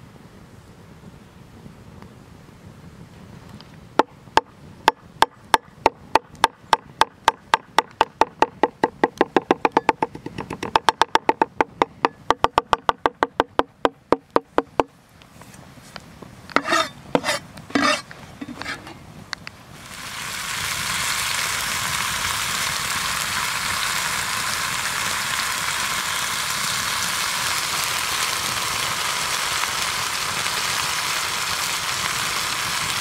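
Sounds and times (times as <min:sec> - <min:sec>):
knife chopping on cutting board: 0:16.6 - 0:18.8
knife scraping cutting board: 0:16.6 - 0:19.0.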